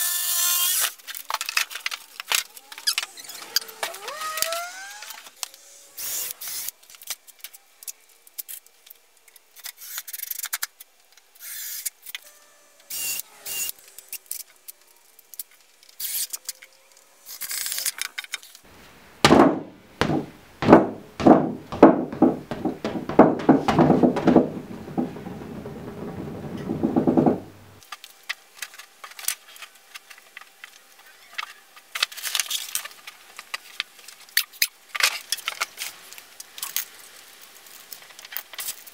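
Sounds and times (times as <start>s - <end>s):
exercise ball thumping and rubbing: 19.2s - 27.8s
knocks and clatters on wood: 19.2s - 27.8s.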